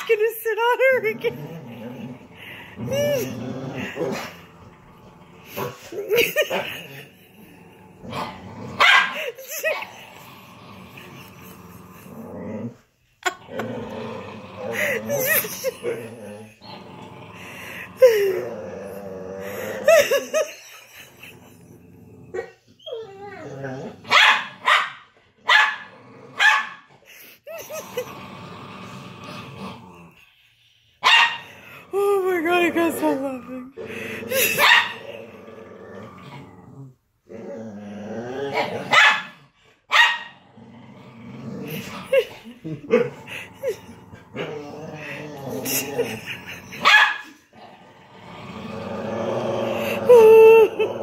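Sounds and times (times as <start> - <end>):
dog growling: 0.0 - 24.7, 25.7 - 30.6, 31.4 - 51.0
dog barking and yipping: 8.8 - 9.2, 24.1 - 25.8, 26.4 - 26.8, 31.0 - 31.4, 34.6 - 35.0, 38.9 - 39.3, 39.9 - 40.3, 46.8 - 47.2.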